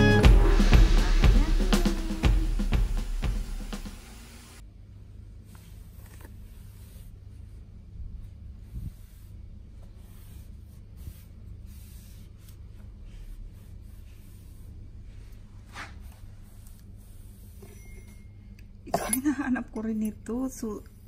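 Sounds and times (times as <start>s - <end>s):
cloth wiping shelf: 5.4s - 17.6s.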